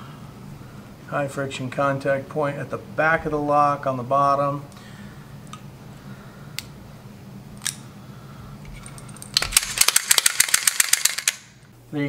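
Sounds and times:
low steady hum: 0.0 - 12.0
pistol metallic clicks: 9.2 - 11.5.

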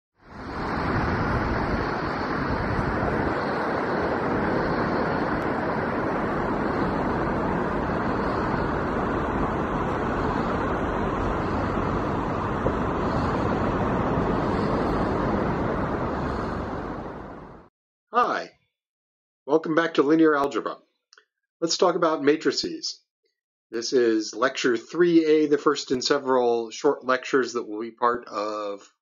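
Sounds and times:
ocean surf roaring: 0.2 - 17.7.

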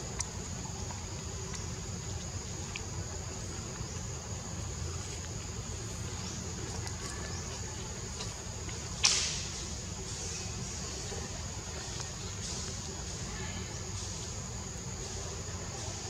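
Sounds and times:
insects droning: 0.0 - 16.0.

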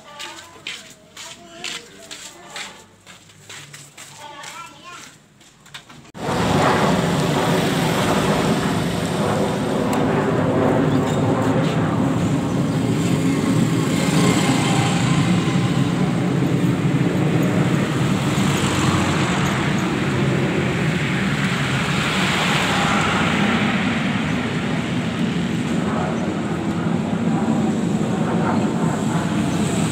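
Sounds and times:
road traffic noise: 0.0 - 29.9
motorcycles passing: 6.2 - 29.9.

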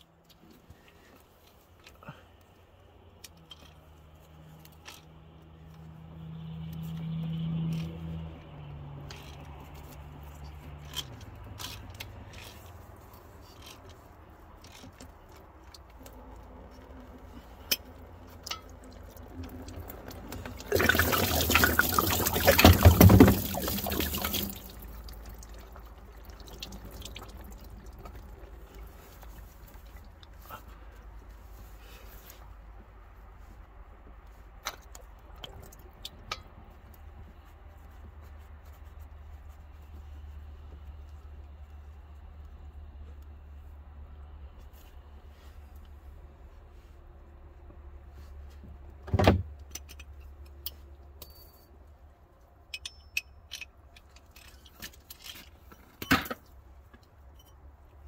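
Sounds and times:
clicks of hands and tools: 3.1 - 5.9, 49.6 - 51.7, 52.6 - 57.6
liquid rushing into a pan: 20.5 - 25.2.

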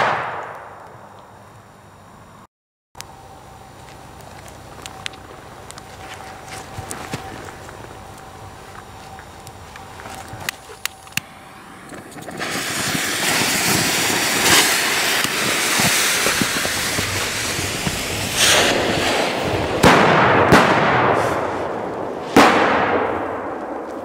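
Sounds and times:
firecracker bangs: 0.0 - 0.8, 11.2 - 24.0
firecracker hissing: 5.4 - 23.4.

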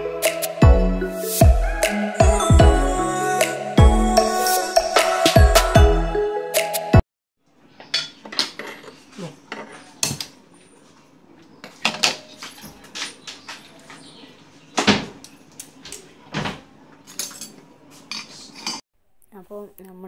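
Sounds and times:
metal kitchenware clinking: 7.8 - 10.2, 11.7 - 13.3, 17.1 - 18.8.

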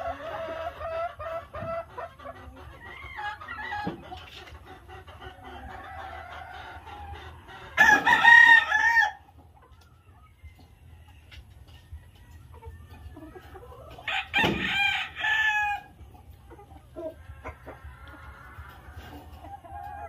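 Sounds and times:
chickens clucking: 0.0 - 20.0
rooster crowing: 7.8 - 9.2, 14.1 - 15.9.

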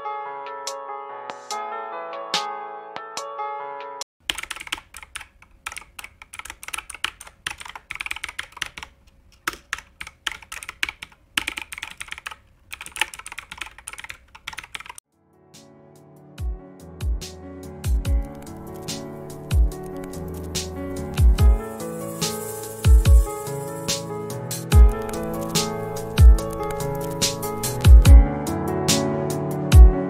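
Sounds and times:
soft music: 0.0 - 4.0, 15.1 - 30.0
keyboard typing: 4.2 - 15.0, 18.1 - 24.1, 24.7 - 28.1.

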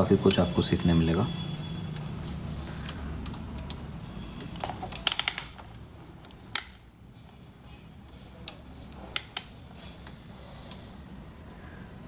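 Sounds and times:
sharp mechanical clicks: 2.8 - 6.8, 8.5 - 10.8.

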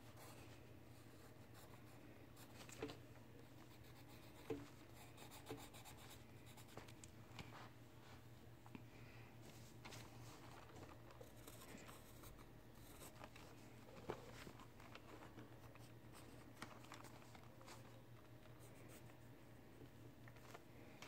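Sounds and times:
pencil scratching on paper: 3.7 - 6.7.

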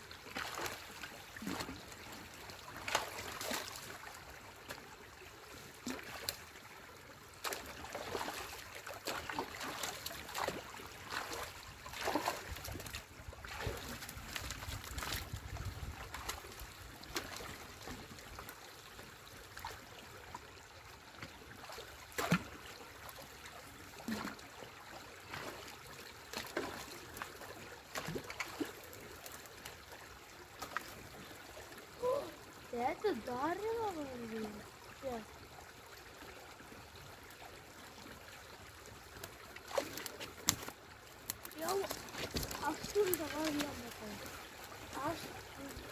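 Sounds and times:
stream water trickling: 0.0 - 45.9
splashes and knocks: 0.2 - 4.9, 5.8 - 6.6, 7.3 - 18.6, 21.2 - 23.4, 24.0 - 29.8, 30.6 - 31.3, 39.2 - 45.9.

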